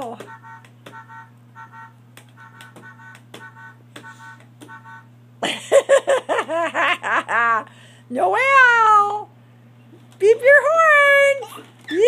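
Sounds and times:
toy beeping tones: 0.2s - 5.1s.

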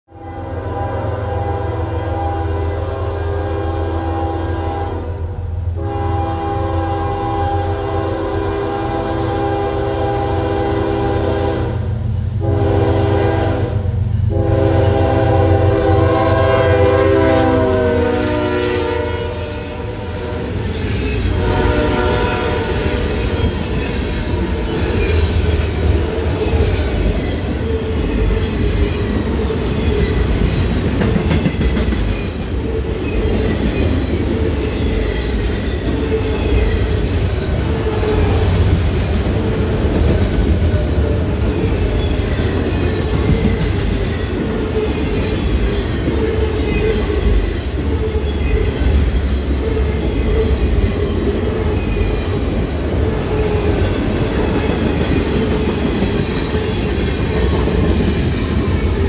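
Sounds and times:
locomotive air horn blasts: 0.1s - 20.6s, 21.3s - 24.7s
train wheels clattering over rail joints: 29.8s - 37.0s.

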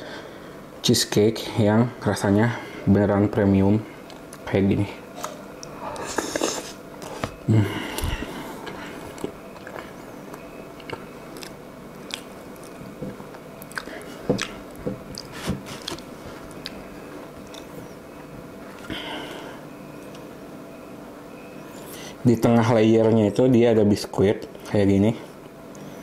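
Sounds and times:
mouth clicks and smacks: 9.1s - 16.8s
person biting and chewing: 9.1s - 16.8s.

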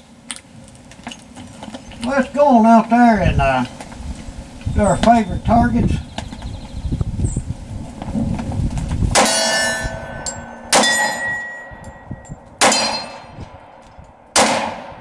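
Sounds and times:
steel targets ringing: 9.2s - 13.4s
pistol shots: 14.3s - 15.0s.

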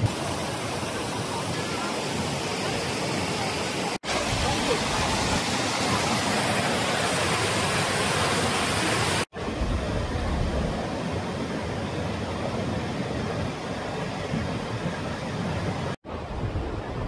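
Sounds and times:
river rapids rushing: 0.0s - 16.9s
waterfall rushing over rocks: 0.0s - 17.0s.

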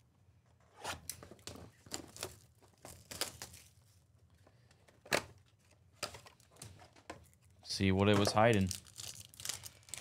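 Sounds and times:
shrink wrap ripping and crackling: 1.9s - 3.8s, 8.2s - 10.0s.

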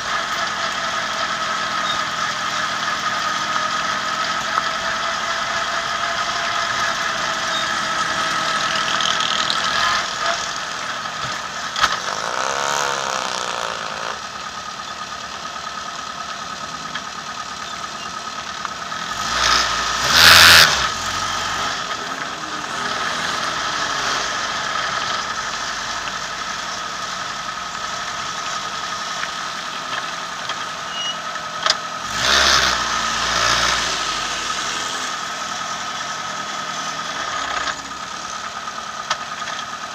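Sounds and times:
race car engine idling: 0.0s - 19.2s, 24.5s - 32.0s.

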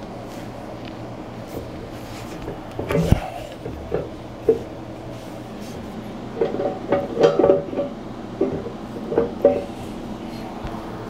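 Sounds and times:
metal knocks and clunks: 2.4s - 4.7s, 6.4s - 9.8s.

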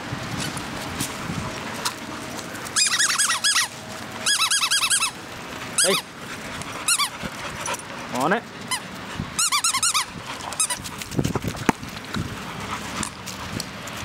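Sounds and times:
squeaky rubber toy squeaking: 2.8s - 5.2s, 5.8s - 6.1s, 6.9s - 7.1s, 8.7s - 10.8s.

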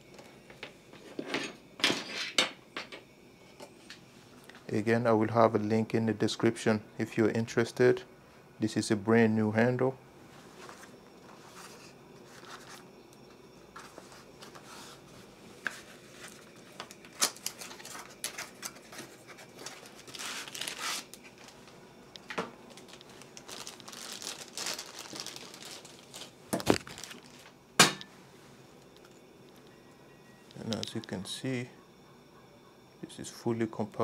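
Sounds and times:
rustling cardboard and packaging: 10.5s - 12.9s, 13.7s - 21.8s, 22.6s - 27.5s.

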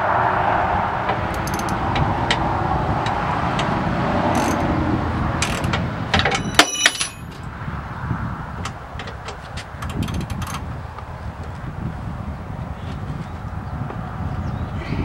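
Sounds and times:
steady rumbling background: 0.0s - 15.0s
ringing metal clank: 6.2s - 7.4s.

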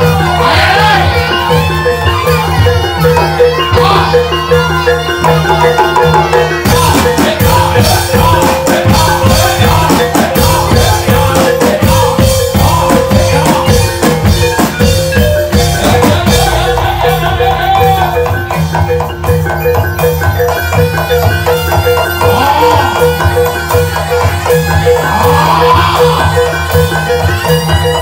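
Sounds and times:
fast hand-drum beats: 0.0s - 28.0s
ringing metallophones and gongs: 0.0s - 28.0s.

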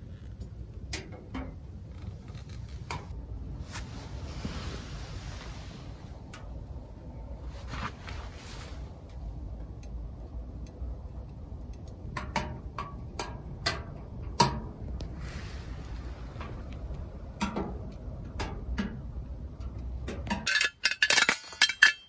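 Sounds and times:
metal clinks: 20.4s - 22.0s.

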